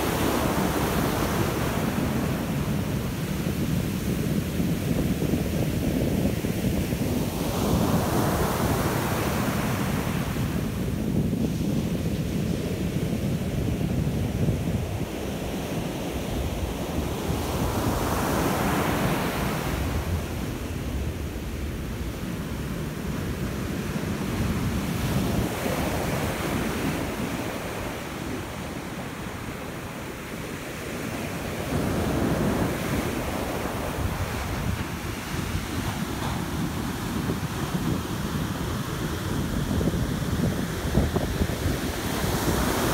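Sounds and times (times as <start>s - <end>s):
wind buffeting microphone: 0.0s - 42.9s
ocean surf breaking: 14.4s - 42.9s.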